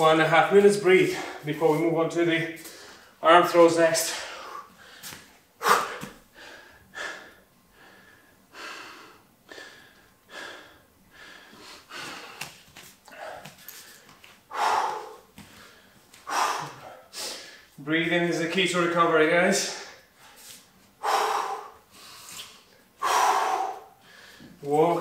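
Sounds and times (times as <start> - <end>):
man breathing hard: 1.0 - 1.4, 2.6 - 3.2, 4.0 - 17.8, 19.6 - 24.7.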